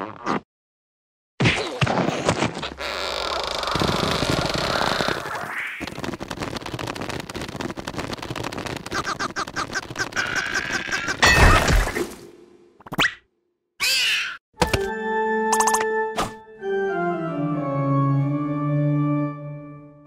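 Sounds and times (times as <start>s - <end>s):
fast rattling: 5.8s - 10.8s
cartoon gibberish voice: 10.1s - 11.4s.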